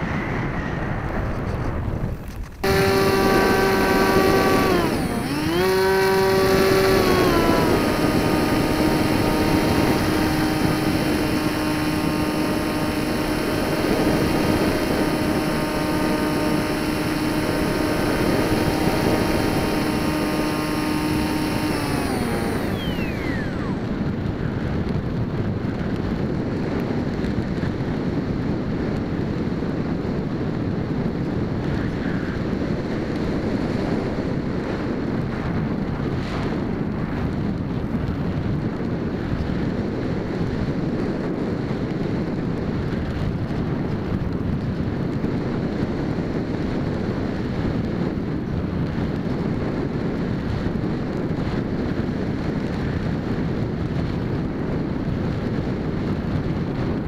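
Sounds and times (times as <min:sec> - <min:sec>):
wind rushing over microphone: 0:00.0 - 0:57.0
electric motor high-pitched buzz: 0:02.6 - 0:24.0.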